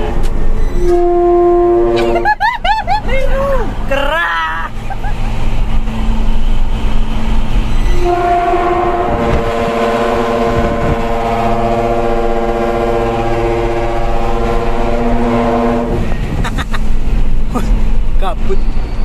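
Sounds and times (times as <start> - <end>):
truck air horn chord: 0.8 - 2.2, 7.9 - 16.0.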